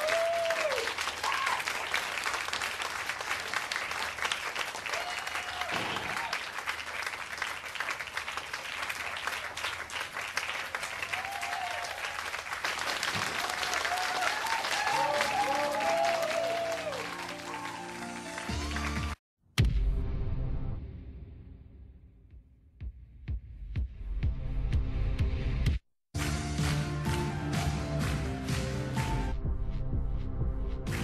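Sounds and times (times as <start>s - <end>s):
whooping cheers: 0.0s - 2.0s, 4.8s - 6.5s, 10.7s - 12.3s, 13.0s - 18.2s
audience clapping: 0.0s - 19.2s, 26.1s - 29.3s.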